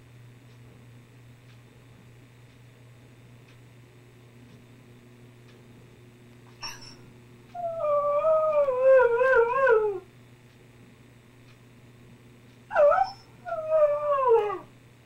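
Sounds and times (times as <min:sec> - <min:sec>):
dog howling: 0:07.6 - 0:10.1, 0:12.7 - 0:14.7
dog yelping: 0:12.7 - 0:14.7.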